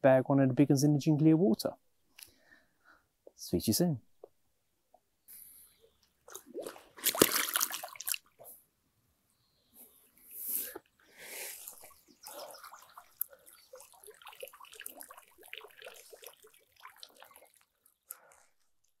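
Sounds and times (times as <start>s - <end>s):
water dripping into lake: 6.0s - 8.4s, 11.6s - 19.0s
water splashes: 6.2s - 8.4s, 11.6s - 18.0s
mat sloshing in water: 6.3s - 8.4s, 11.6s - 17.7s.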